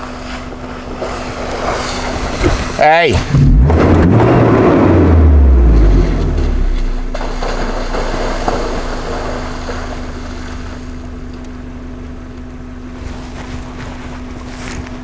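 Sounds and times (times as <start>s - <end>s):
vehicle engine idling: 0.0s - 15.0s
elephant splashing through water: 5.8s - 11.1s.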